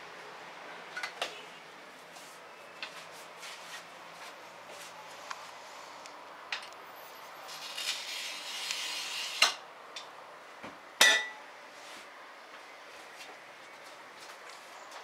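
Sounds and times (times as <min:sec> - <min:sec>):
glass cutter scratching glass: 0:07.4 - 0:09.6.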